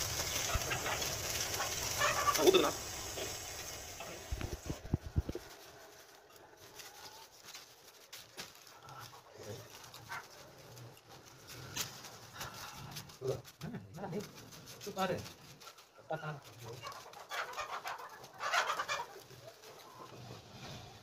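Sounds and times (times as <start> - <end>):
gas burner flame hissing: 0.0 - 5.7.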